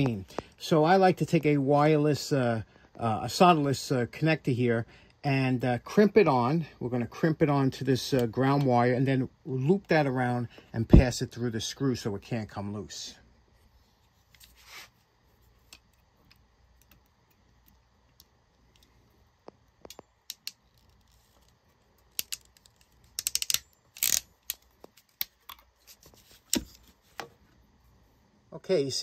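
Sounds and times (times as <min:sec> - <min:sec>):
crimping tool ratchet clicks: 0:19.8 - 0:25.6.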